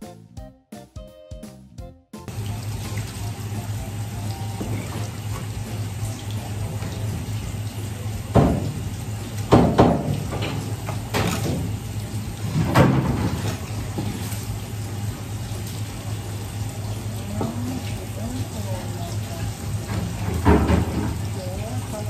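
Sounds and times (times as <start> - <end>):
tap water running into sink: 2.3 - 22.0
sharp knocks: 9.5 - 10.5.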